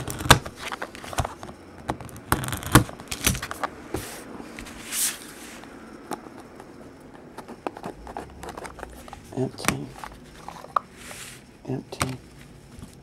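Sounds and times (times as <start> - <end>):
scissors snipping cardboard: 0.0 - 1.3, 2.2 - 3.6
cardboard swishing scrapes: 3.9 - 5.7, 11.0 - 11.4.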